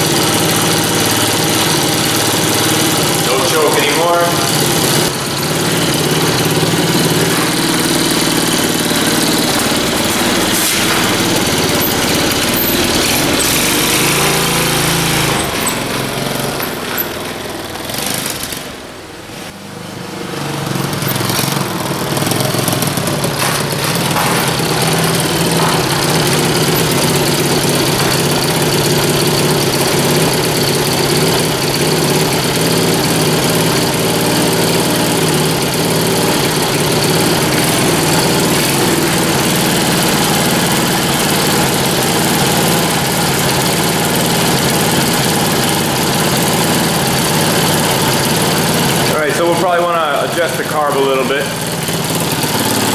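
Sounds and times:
quad engine running: 0:00.0 - 0:52.9.

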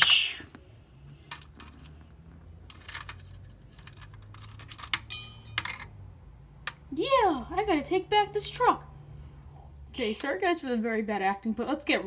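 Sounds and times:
plastic toy pieces clicking: 0:02.7 - 0:05.9.

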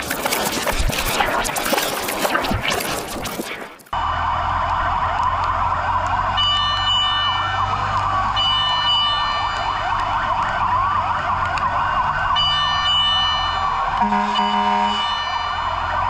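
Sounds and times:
emergency sirens yelping and wailing: 0:00.0 - 0:16.0
steady high tone: 0:06.4 - 0:10.4, 0:12.4 - 0:16.0.

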